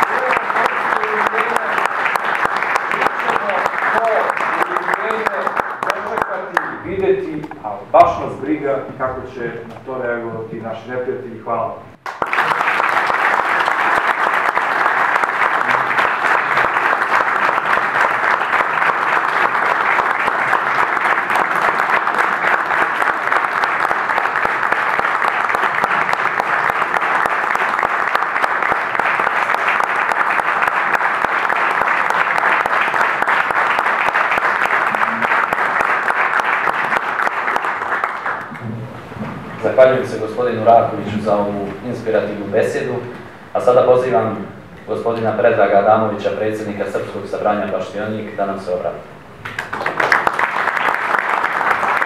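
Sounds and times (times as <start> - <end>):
audience applauding: 0.0 - 7.6, 12.0 - 38.7, 49.4 - 52.0.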